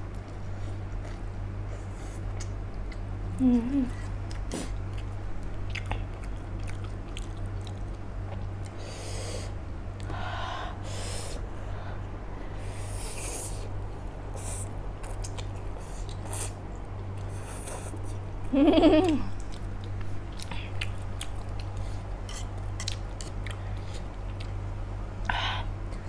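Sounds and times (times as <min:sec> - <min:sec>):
low electrical hum: 0:00.0 - 0:26.0
person chewing: 0:00.1 - 0:03.0, 0:04.0 - 0:08.8, 0:14.4 - 0:18.2, 0:19.1 - 0:24.6.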